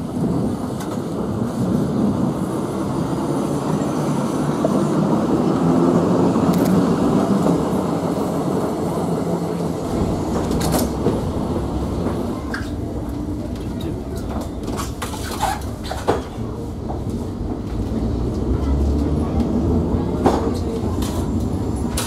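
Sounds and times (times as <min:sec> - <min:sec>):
electric tram rumbling past: 0:00.0 - 0:22.0
sharp clicks of tram: 0:00.6 - 0:01.2, 0:06.3 - 0:07.7, 0:09.7 - 0:22.0.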